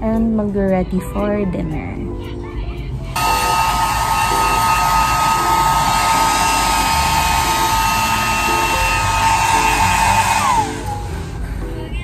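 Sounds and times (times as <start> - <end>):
hair dryer running: 3.2 - 11.4.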